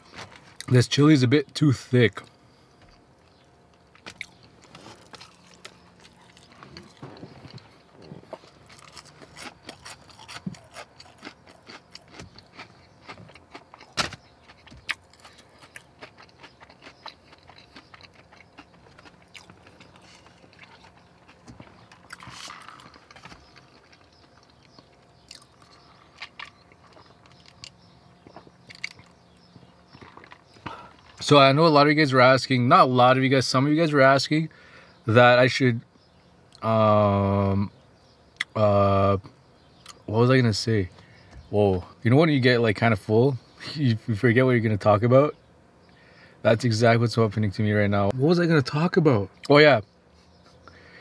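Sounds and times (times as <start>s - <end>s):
person chewing: 3.2s - 29.2s, 29.8s - 31.2s.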